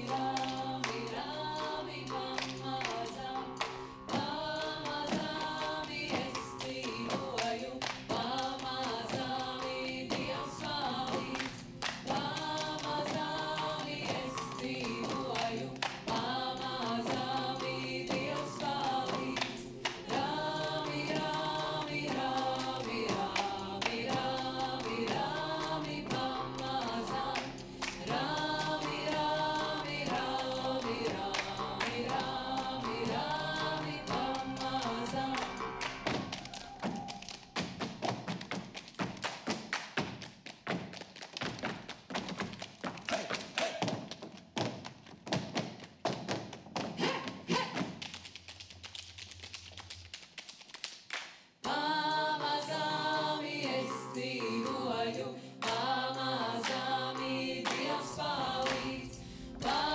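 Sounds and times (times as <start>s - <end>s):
vocal ensemble singing: 0.0s - 38.6s, 51.6s - 59.9s.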